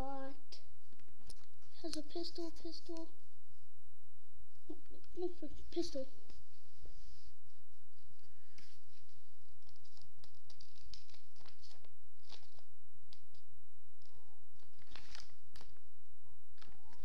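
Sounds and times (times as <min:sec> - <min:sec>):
plastic wrapping crinkling and tearing: 0:08.5 - 0:13.4, 0:14.0 - 0:15.8, 0:16.6 - 0:17.0.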